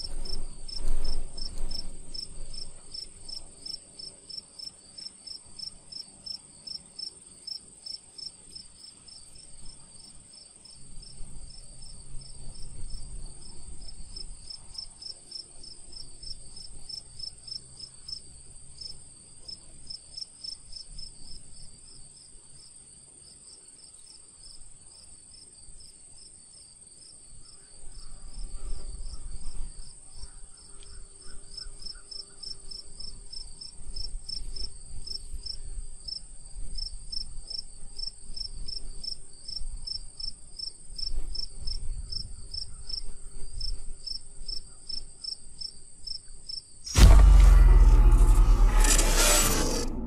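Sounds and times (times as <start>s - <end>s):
low rumble: 46.9s - 50.0s
sudden loud burst of noise: 46.9s - 50.0s.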